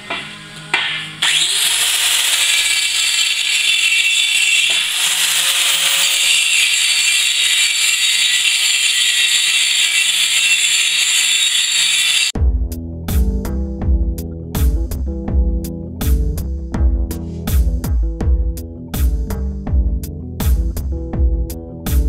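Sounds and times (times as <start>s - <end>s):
angle grinder grinding steel: 1.0s - 12.4s.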